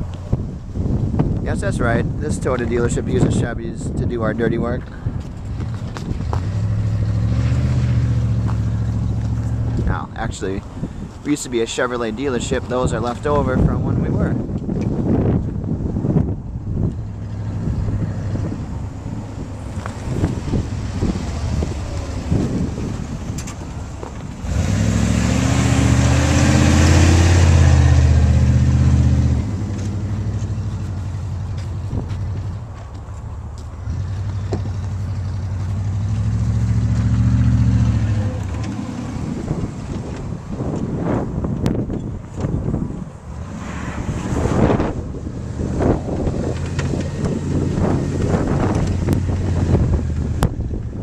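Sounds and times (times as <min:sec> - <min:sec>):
wind on microphone: 0:00.0 - 0:11.6, 0:12.2 - 0:32.7, 0:33.9 - 0:51.0
truck engine humming: 0:05.2 - 0:11.2, 0:15.2 - 0:43.5.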